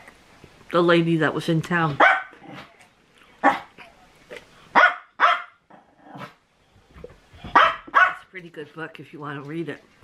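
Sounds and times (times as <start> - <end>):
dog barking: 2.0 - 2.7, 3.4 - 3.7, 4.7 - 5.6, 7.5 - 8.3.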